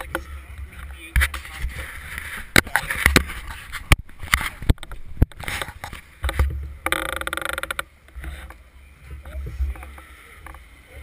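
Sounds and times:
sharp clicks and knocks: 2.5s - 8.6s.

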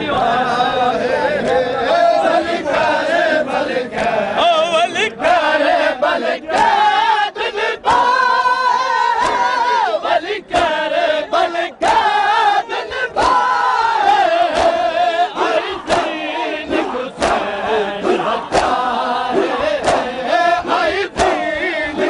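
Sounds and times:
men chanting in unison: 0.0s - 22.0s
hands slapping chests: 9.2s - 9.6s, 10.5s - 10.8s, 14.4s - 14.8s, 15.4s - 20.2s, 20.8s - 21.5s.

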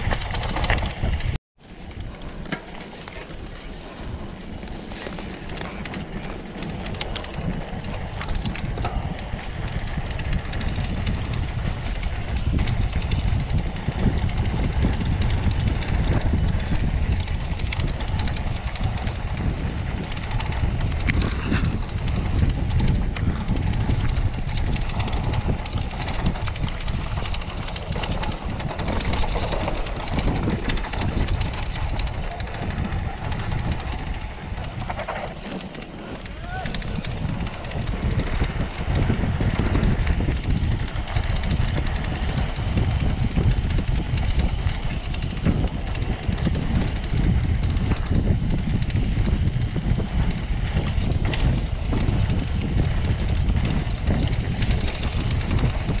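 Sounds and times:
bike rattling: 0.0s - 56.0s
bike tyre rumble on dirt: 0.0s - 56.0s.

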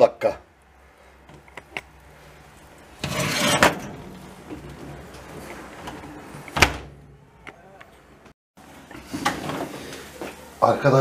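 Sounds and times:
metal tray scraping on oven rack: 3.0s - 5.7s
tray clunk: 3.0s - 7.0s.

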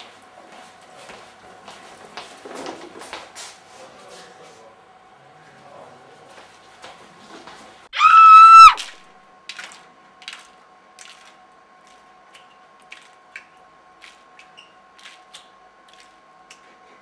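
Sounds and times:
loud high-pitched scream: 7.9s - 8.9s.

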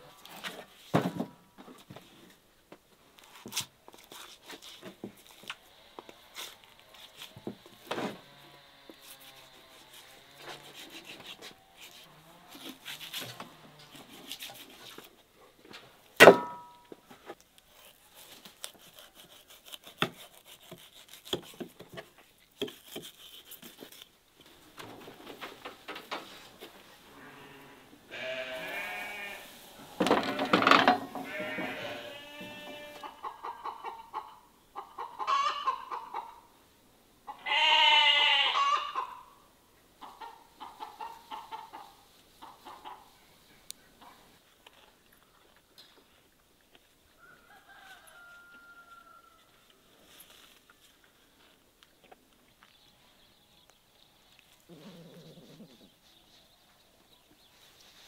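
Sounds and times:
knife clicking and scraping meat: 9.0s - 15.1s, 17.6s - 24.1s
sharp knock with metallic ring: 16.2s - 16.7s
livestock bleating: 27.1s - 33.1s, 37.3s - 39.1s.

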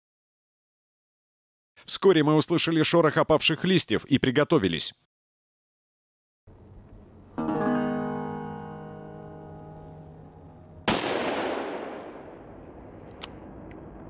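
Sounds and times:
acoustic guitar chord: 7.4s - 10.8s
gunshot echoing: 10.8s - 13.2s.

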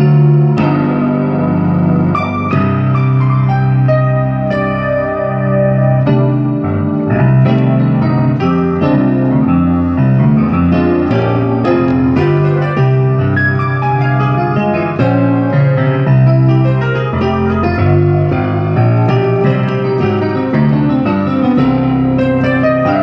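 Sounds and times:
electric piano melody: 0.0s - 23.0s.

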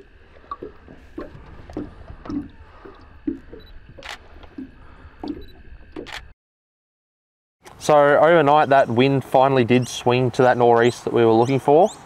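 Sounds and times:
small knocks in a boat: 0.0s - 6.1s
wet squelching and dripping: 0.0s - 6.3s.

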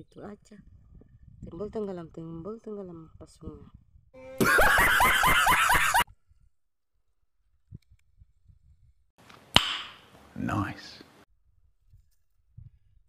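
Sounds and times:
man laughing high-pitched: 4.4s - 6.0s.

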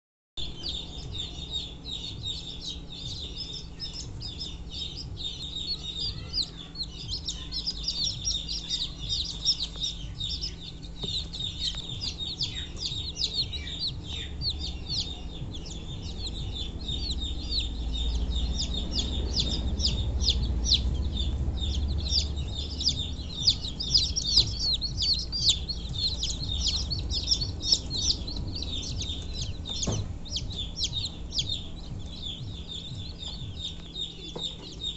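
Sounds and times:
chicks peeping: 0.4s - 34.9s
low rumble: 0.4s - 34.9s.

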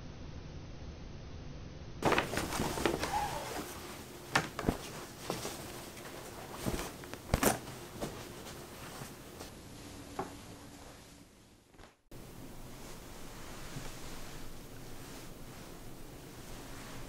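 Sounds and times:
paper bags rustling: 2.0s - 9.2s
fabric rustling: 2.0s - 17.0s.

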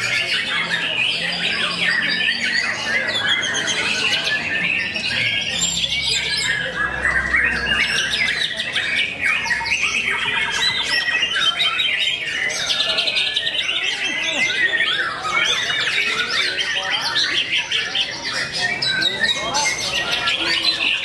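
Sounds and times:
rapid whistles trills and chattering: 0.0s - 21.0s
songbirds singing: 0.0s - 21.0s.

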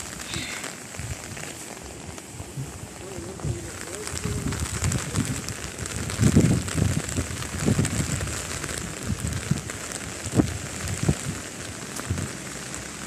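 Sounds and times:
rain hissing: 0.0s - 13.0s.

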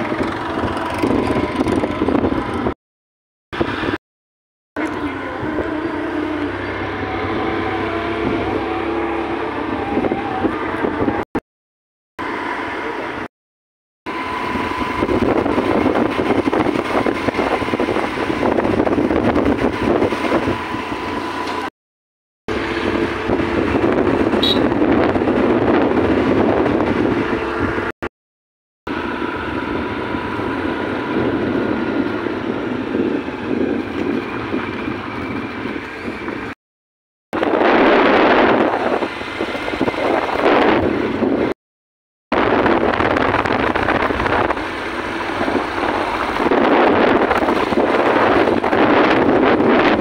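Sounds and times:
motorbike engine: 0.0s - 2.8s, 4.8s - 11.2s, 22.5s - 28.0s, 28.9s - 36.6s
wind rushing over microphone: 0.0s - 2.8s, 6.7s - 11.4s, 14.1s - 21.2s, 22.5s - 28.0s, 28.9s - 36.6s, 37.4s - 41.6s, 42.3s - 50.0s.

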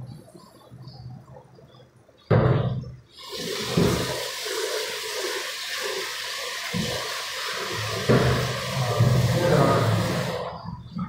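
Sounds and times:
tap water running into steel sink: 3.2s - 10.6s.

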